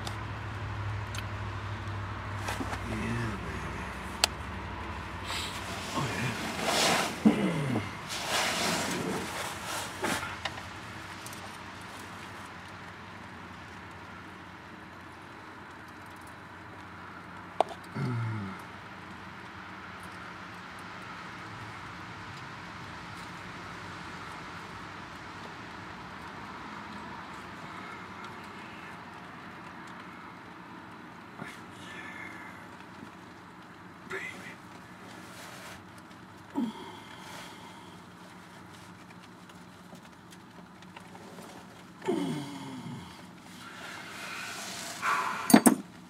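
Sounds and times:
low steady background noise: 0.0 - 46.0
rustling and scraping: 2.3 - 4.2, 5.1 - 12.5, 34.3 - 36.5, 37.1 - 42.0, 43.3 - 46.0.

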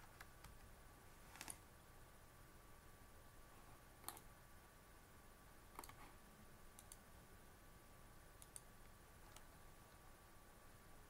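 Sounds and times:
faint steady tone: 0.0 - 11.0
computer mouse clicks: 4.0 - 4.3, 5.7 - 6.1, 6.8 - 7.0, 8.4 - 10.0.

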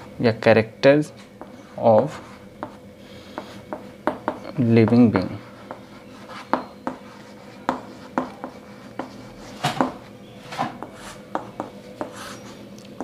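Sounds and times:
chalk tapping on chalkboard: 1.4 - 10.1, 10.8 - 12.4.

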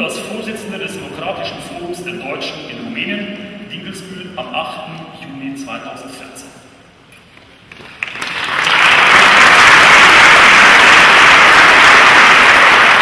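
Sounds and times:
audience applause: 7.8 - 13.0.

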